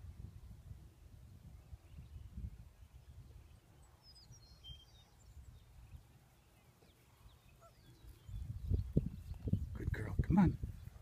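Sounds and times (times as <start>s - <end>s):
wind rumbling on microphone: 0.0s - 11.0s
high bird chirps: 3.9s - 9.7s.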